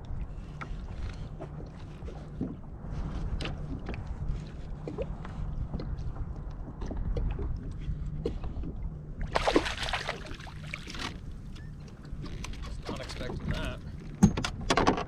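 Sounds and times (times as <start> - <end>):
rumble of water and wind: 0.0 - 15.0
fish splashing: 9.3 - 11.2.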